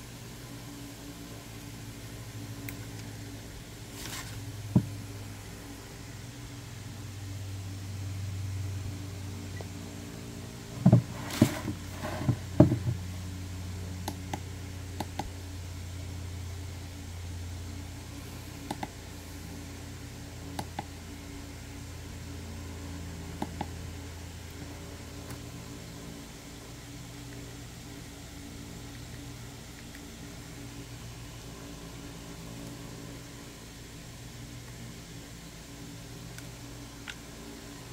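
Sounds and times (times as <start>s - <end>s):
low hum: 0.0s - 37.9s
plastic lantern knocking: 10.8s - 13.0s.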